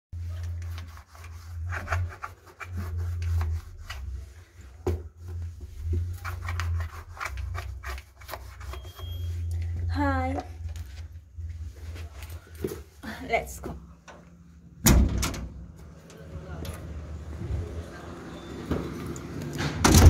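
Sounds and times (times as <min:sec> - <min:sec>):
low rumble: 0:09.3 - 0:18.5.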